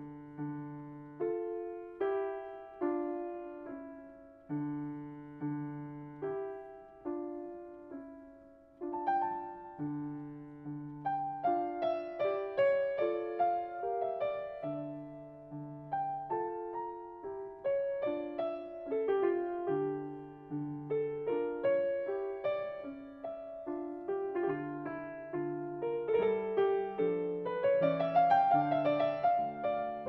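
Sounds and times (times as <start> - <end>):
slow solo piano music: 0.0 - 30.0.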